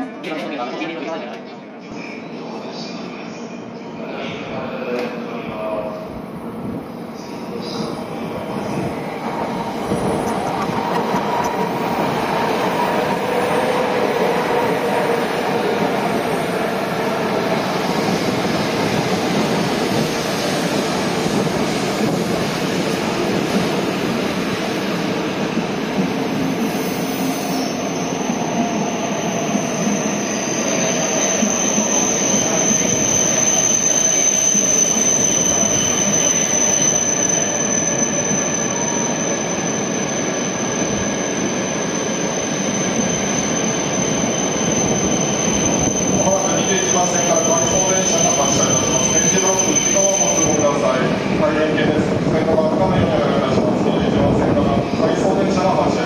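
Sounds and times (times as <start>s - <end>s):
high brake squeal: 26.6s - 51.0s.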